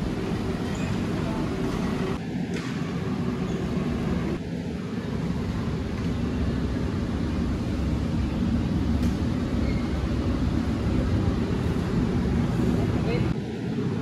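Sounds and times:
steady low rumble: 0:03.0 - 0:14.0.

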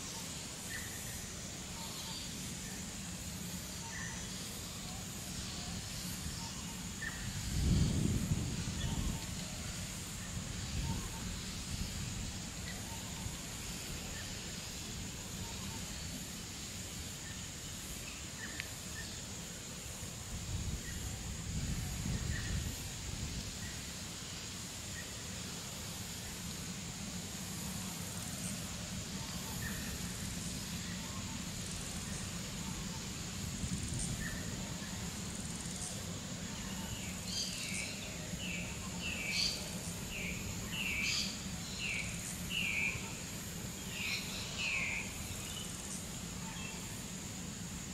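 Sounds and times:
steady high hiss: 0:00.0 - 0:47.9
breeze gusting: 0:05.4 - 0:17.9.

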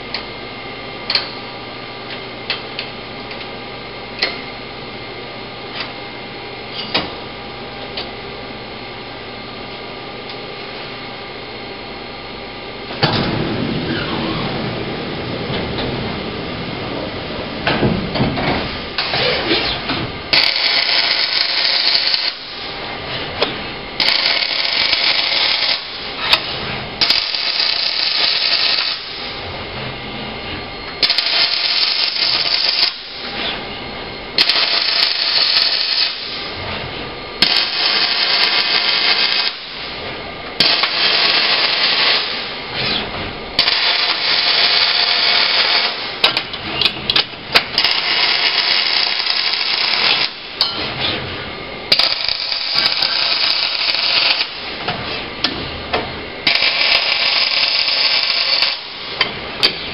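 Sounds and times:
welding arc hiss: 0:18.9 - 0:22.8, 0:24.0 - 0:26.4, 0:27.0 - 0:29.4, 0:31.0 - 0:33.4, 0:34.4 - 0:36.6, 0:37.4 - 0:40.0, 0:40.6 - 0:42.7, 0:43.6 - 0:46.4, 0:47.7 - 0:50.7, 0:51.9 - 0:54.9, 0:56.4 - 0:59.7.

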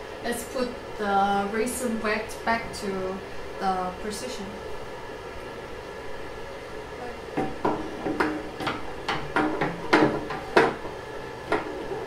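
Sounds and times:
plastic vat knocks and clunks: 0:07.4 - 0:11.8.

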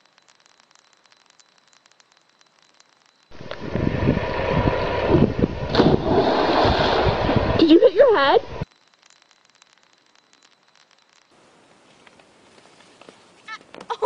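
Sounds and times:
faint clicks: 0:00.0 - 0:03.6, 0:08.6 - 0:13.9
wind buffeting microphone: 0:03.4 - 0:08.6
body splashing into pool: 0:04.0 - 0:07.6.

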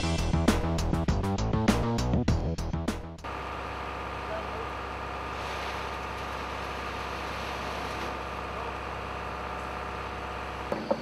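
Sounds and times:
machine engine running steadily: 0:03.2 - 0:11.0.

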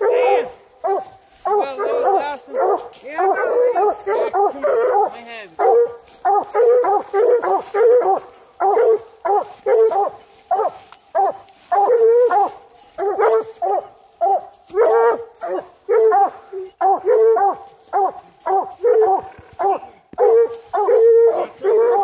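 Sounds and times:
hounds barking: 0:00.0 - 0:22.0.

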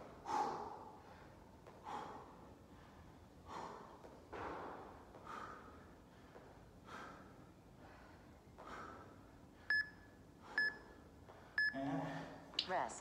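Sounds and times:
person breathing hard: 0:00.1 - 0:09.6.

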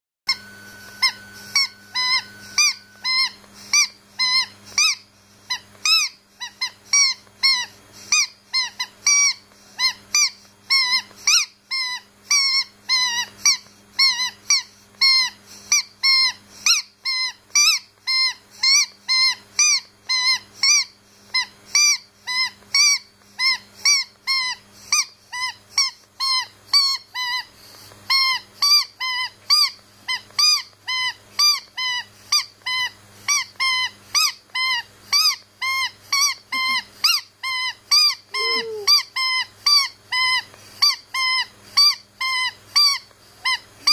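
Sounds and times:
squeaky dog toy squeaking: 0:00.3 - 0:43.9.

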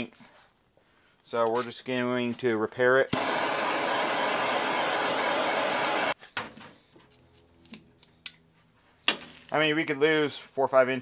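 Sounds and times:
gas torch hissing: 0:03.1 - 0:06.2.

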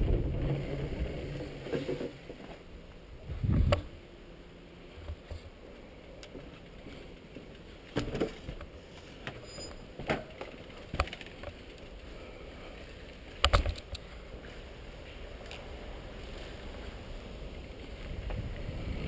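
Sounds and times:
bike tyres rolling on dirt: 0:00.0 - 0:19.0
bike clattering over bumps: 0:06.3 - 0:12.1.

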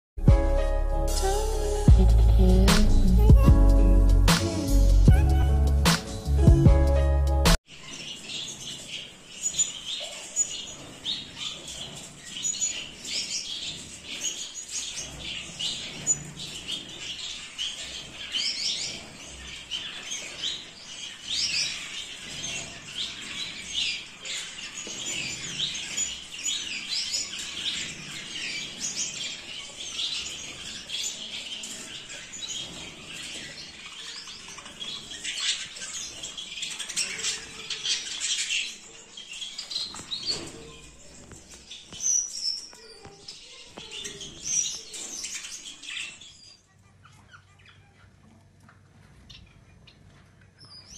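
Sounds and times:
finches chirping: 0:07.7 - 0:48.2.

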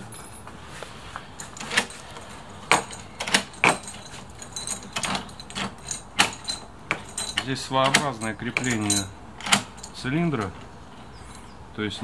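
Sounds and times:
keys jangling against metal door: 0:00.0 - 0:00.6, 0:01.2 - 0:11.6
key clicking in lock: 0:01.4 - 0:10.7.

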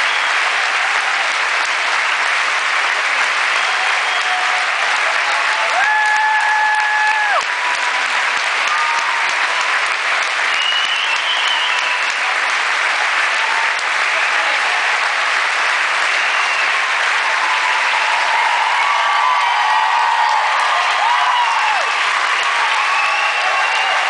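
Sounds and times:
audience applauding: 0:00.0 - 0:24.0
high whistles: 0:10.5 - 0:12.1, 0:16.1 - 0:16.8.

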